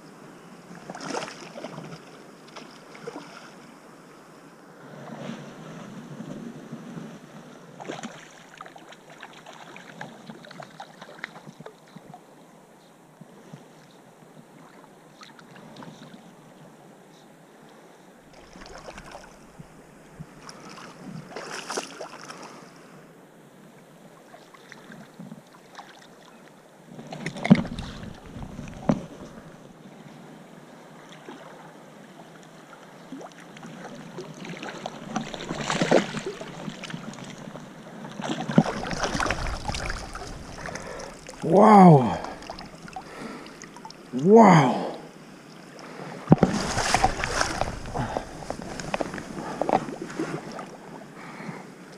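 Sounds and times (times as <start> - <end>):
river water splashing and swirling: 0.1 - 12.4, 14.5 - 16.4, 18.2 - 23.1, 24.1 - 51.9
fish splashing at the surface: 34.4 - 37.0, 38.2 - 44.0, 46.3 - 50.6.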